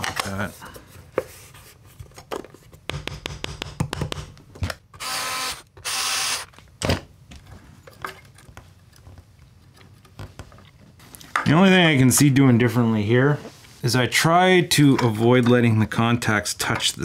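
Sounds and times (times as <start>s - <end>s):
screwdriver whirring: 4.9s - 6.5s.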